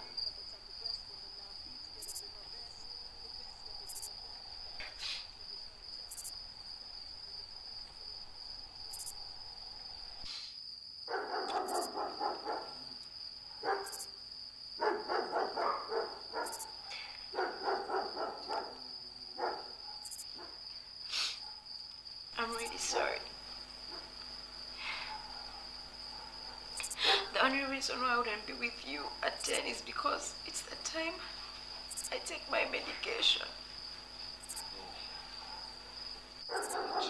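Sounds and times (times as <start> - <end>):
crickets chirring: 0.0 - 37.0.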